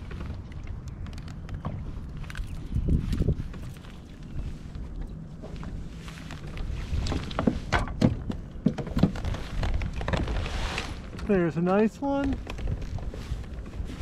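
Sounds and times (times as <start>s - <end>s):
low steady rumble: 0.0s - 14.0s
sharp knocks and thunks: 7.1s - 9.4s.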